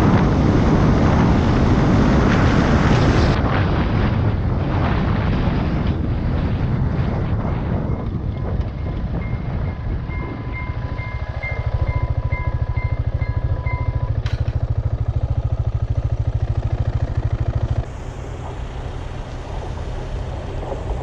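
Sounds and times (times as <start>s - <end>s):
motorcycle engine: 0.0s - 21.0s
wind rushing over helmet: 0.0s - 21.0s
level-crossing bell ringing: 8.6s - 14.2s.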